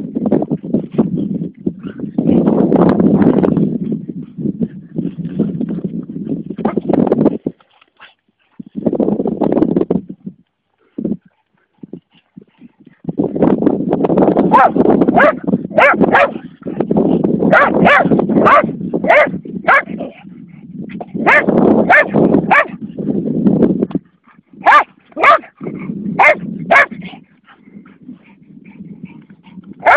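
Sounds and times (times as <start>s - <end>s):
dog barking: 14.5s - 16.5s, 17.5s - 20.2s, 21.2s - 22.8s, 24.6s - 25.6s, 26.2s - 27.0s.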